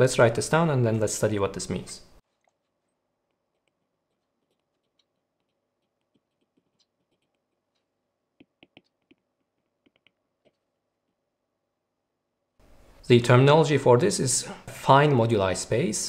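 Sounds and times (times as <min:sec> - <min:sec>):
stylus tapping on screen: 0:03.5 - 0:11.2.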